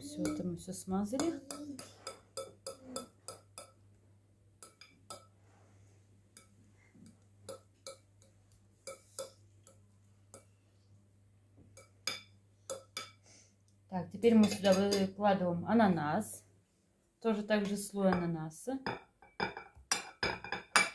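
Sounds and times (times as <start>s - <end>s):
low steady hum: 0.0s - 20.9s
fork tapping and scraping bowl: 0.1s - 0.5s, 1.1s - 3.8s, 4.6s - 5.4s, 6.3s - 10.6s, 11.7s - 13.2s, 14.3s - 15.1s, 18.9s - 20.9s.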